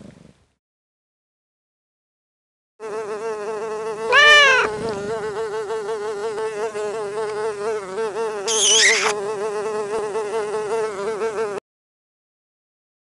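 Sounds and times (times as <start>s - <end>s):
insect-like buzzing drone: 2.8s - 11.6s
short rising and falling cry: 4.1s - 4.7s.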